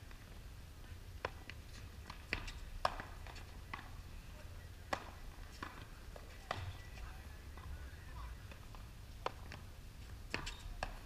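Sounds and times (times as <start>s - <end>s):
low outdoor rumble: 0.0s - 11.0s
ball bouncing on hard court: 1.2s - 4.0s, 4.9s - 6.8s, 10.3s - 11.0s
paddles hitting ball: 1.2s - 4.0s, 4.9s - 7.7s.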